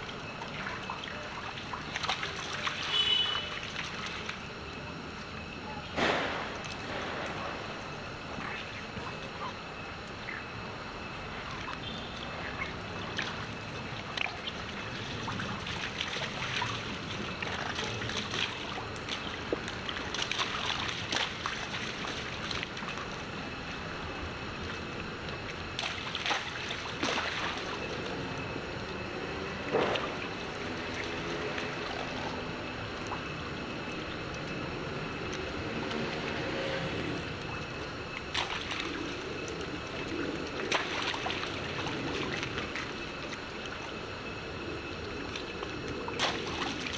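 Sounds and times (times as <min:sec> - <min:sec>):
water splashing in puddle: 0:00.0 - 0:04.4, 0:11.4 - 0:28.5, 0:29.2 - 0:33.3, 0:37.3 - 0:43.9, 0:45.2 - 0:46.9
water trickling: 0:00.0 - 0:05.5, 0:07.7 - 0:46.9.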